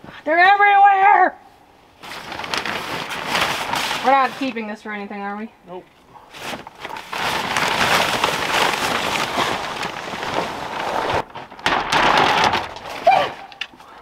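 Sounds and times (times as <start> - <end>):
plastic sheeting crinkling: 2.0 - 5.2, 6.2 - 14.0.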